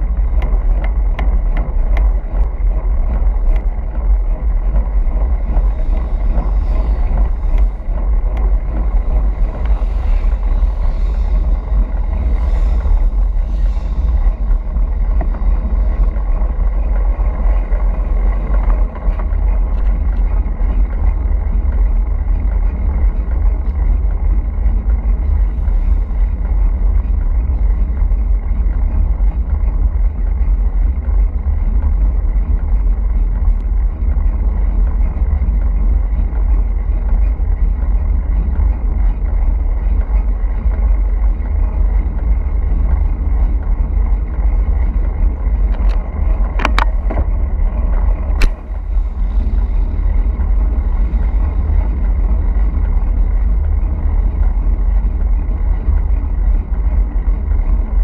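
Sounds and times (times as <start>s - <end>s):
wind buffeting microphone: 0.0s - 58.0s.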